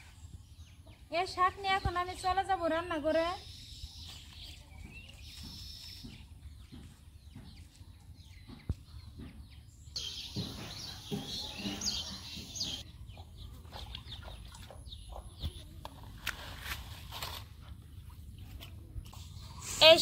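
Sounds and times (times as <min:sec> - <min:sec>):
birds calling: 0:00.4 - 0:15.8
chickens clucking: 0:04.5 - 0:16.0.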